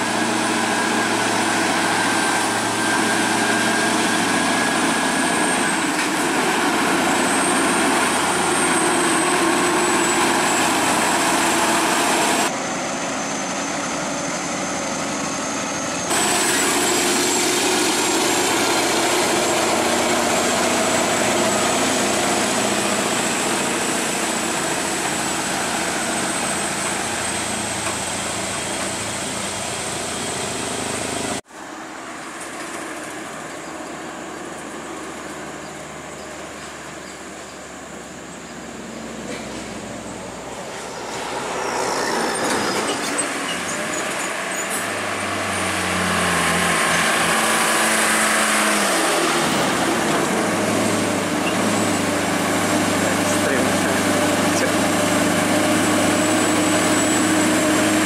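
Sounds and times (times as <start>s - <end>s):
heavy truck diesel engine running: 0.0s - 58.0s.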